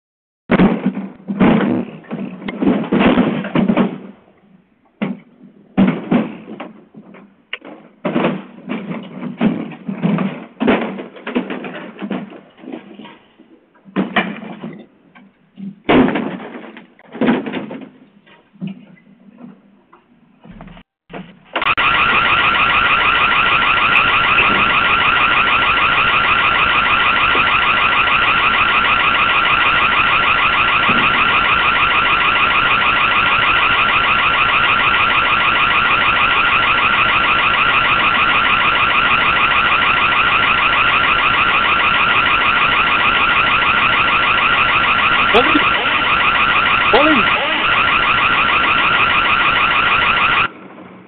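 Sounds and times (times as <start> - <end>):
electronic siren pulsing: 21.6 - 50.5.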